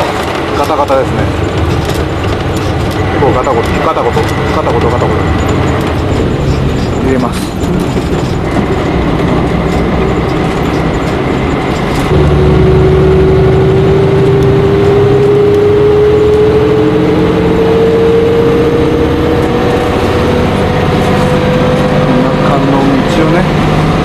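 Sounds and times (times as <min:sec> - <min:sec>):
faint rattling: 0:00.0 - 0:12.2
bus engine from inside cabin: 0:00.0 - 0:24.0
rising whine: 0:08.3 - 0:24.0.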